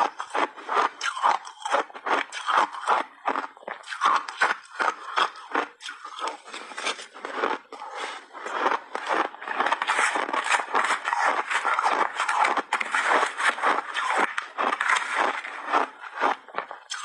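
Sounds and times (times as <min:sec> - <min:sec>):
shaved ice crunching in mouth: 0:00.0 - 0:17.0
metal spoon scraping shaved ice: 0:08.5 - 0:17.0.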